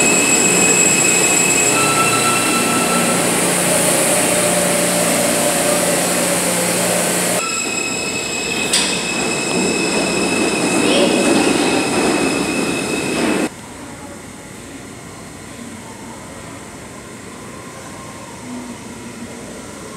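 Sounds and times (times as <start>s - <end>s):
high-pitched tone: 0.0s - 6.8s
subway train wheels rumbling on track: 0.0s - 19.9s.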